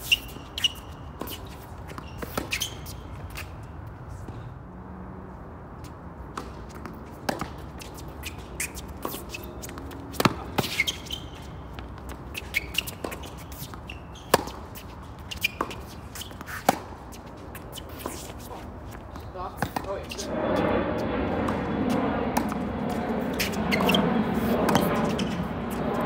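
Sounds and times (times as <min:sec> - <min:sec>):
ball bouncing: 0:06.3 - 0:16.9, 0:21.4 - 0:26.0
racket striking tennis ball: 0:06.3 - 0:20.0, 0:22.3 - 0:25.5
steady low hum: 0:20.0 - 0:26.0.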